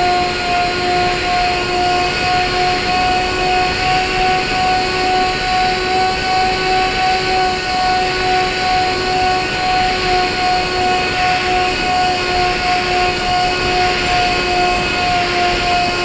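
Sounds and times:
model aircraft motor whine: 0.0 - 16.0.

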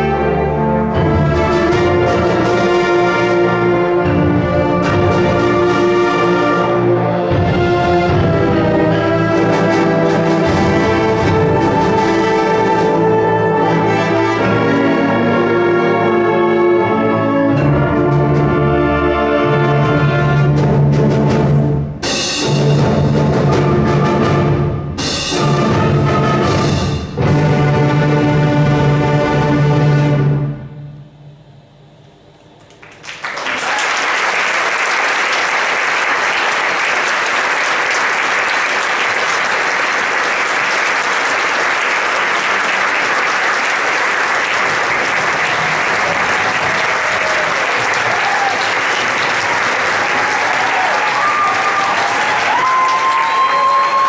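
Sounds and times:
audience applause: 32.7 - 54.0
concert band held chords: 36.3 - 54.0.

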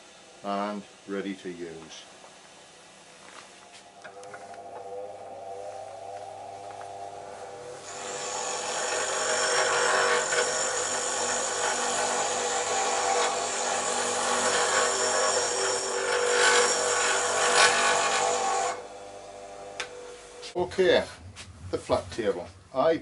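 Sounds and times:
faint motor hum: 0.0 - 23.0
bench grinder grinding steel: 7.0 - 20.4.

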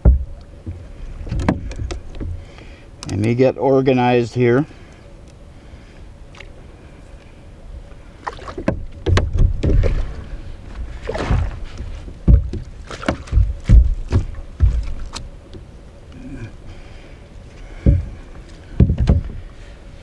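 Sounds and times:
knocks against canoe hull: 0.0 - 2.4, 8.5 - 10.2, 11.0 - 15.2, 17.8 - 19.5
rustle: 0.0 - 20.0.

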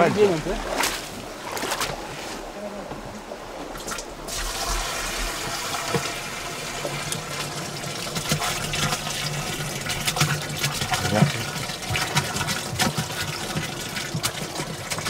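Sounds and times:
water pouring from bucket: 3.8 - 15.0.

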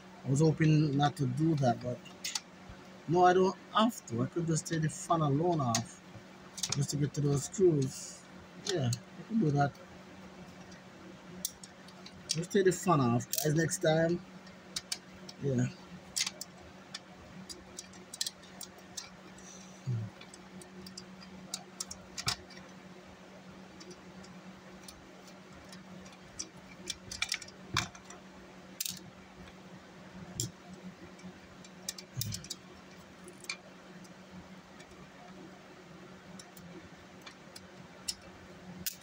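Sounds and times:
faint steady hum: 0.0 - 39.0
screwdriver clicks and ticks: 28.8 - 29.0, 37.3 - 39.0
small metal parts handled: 28.8 - 29.0.

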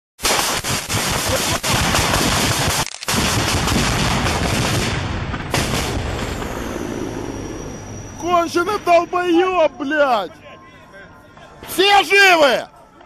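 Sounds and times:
automatic gunfire: 0.2 - 6.0.

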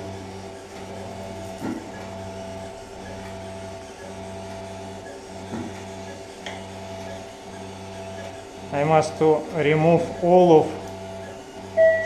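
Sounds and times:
pulsing motor hum: 0.0 - 12.0.

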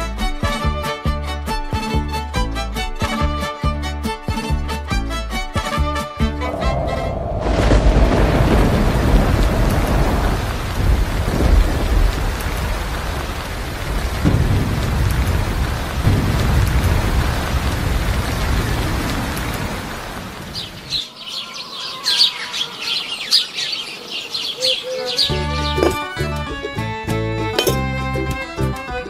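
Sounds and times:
heavy rain: 6.2 - 26.4
rolling thunder: 6.3 - 21.0
birds chirping: 18.0 - 27.0.

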